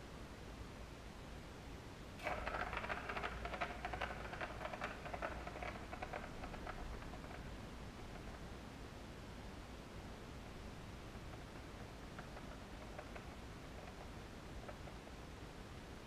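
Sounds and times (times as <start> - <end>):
plastic ball rolling on track: 2.2 - 8.6, 10.9 - 15.2.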